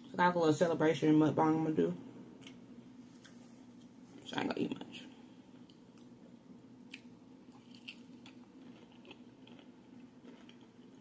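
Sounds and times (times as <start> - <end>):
low steady hum: 0.0 - 11.0
faint chewing: 6.8 - 11.0.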